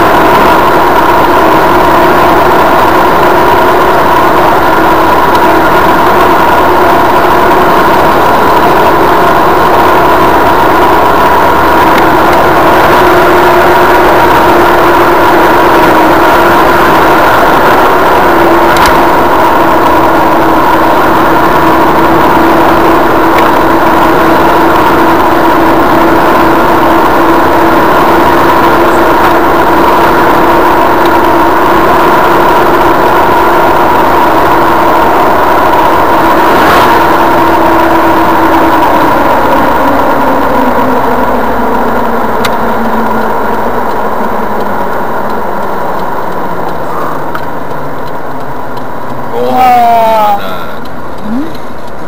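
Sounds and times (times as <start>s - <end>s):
car engine and road noise: 0.0s - 52.0s
faint tick: 45.3s - 49.2s.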